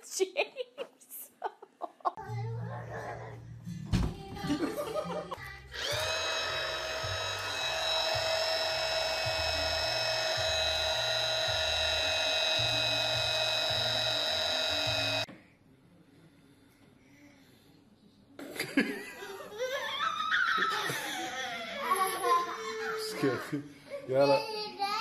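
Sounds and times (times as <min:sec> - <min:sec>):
small electric motor whining: 0:05.7 - 0:15.3.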